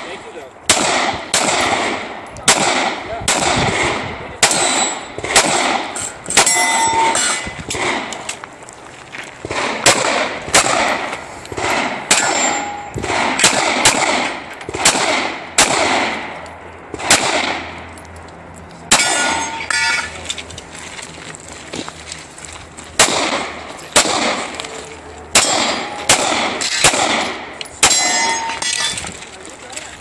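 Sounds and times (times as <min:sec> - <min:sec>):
metallic ringing clang: 0:06.0 - 0:07.6, 0:12.1 - 0:13.0, 0:18.9 - 0:20.2, 0:27.7 - 0:29.0
handgun shots: 0:09.5 - 0:16.3, 0:17.0 - 0:17.7, 0:25.3 - 0:28.6.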